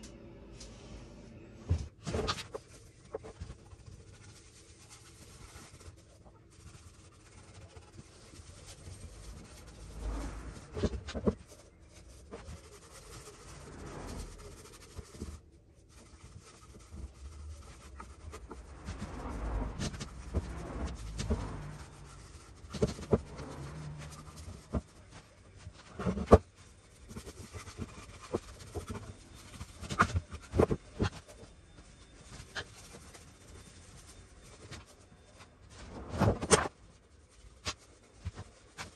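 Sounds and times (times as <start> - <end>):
brush scrubbing rough wood: 2.6 - 25.5.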